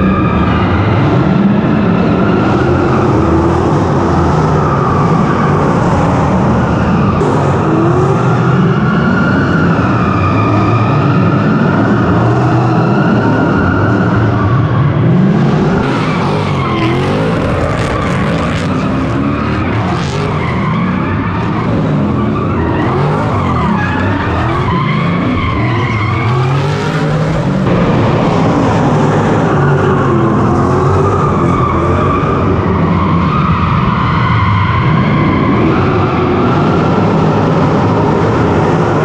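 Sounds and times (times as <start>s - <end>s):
car engine revving hard: 15.0s - 32.8s.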